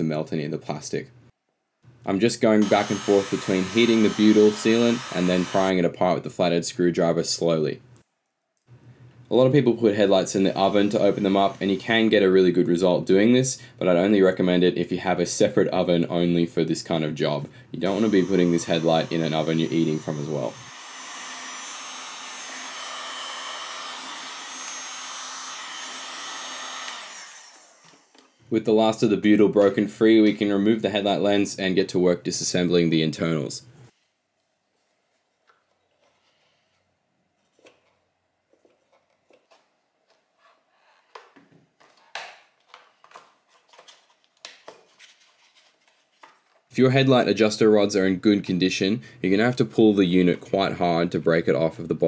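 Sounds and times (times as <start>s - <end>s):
heat gun blowing air: 2.6s - 5.7s, 10.4s - 12.1s, 17.9s - 28.3s.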